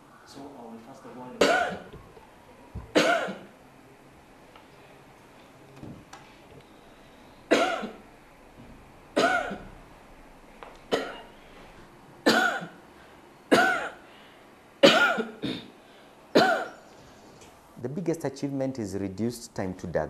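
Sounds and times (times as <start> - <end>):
woman coughing: 1.4 - 1.9, 2.9 - 3.5, 7.5 - 8.0, 9.2 - 9.7, 10.9 - 11.3, 12.2 - 12.8, 13.5 - 14.0, 14.8 - 15.8, 16.4 - 16.8.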